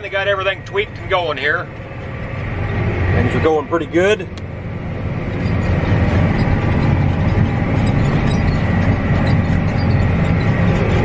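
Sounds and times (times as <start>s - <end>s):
tractor engine running under load: 0.0s - 11.0s
light rattling of implement: 2.6s - 11.0s.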